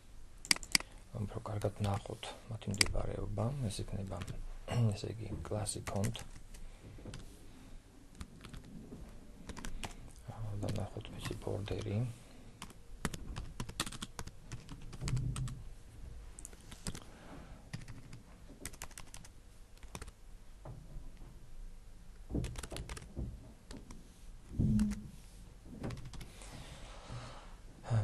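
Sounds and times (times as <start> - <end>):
typing on keyboard: 0.4 - 0.9, 8.1 - 8.7, 9.4 - 10.0, 10.6 - 11.9, 12.6 - 15.6, 16.8 - 17.0, 17.7 - 20.2, 22.4 - 23.1, 25.9 - 26.3.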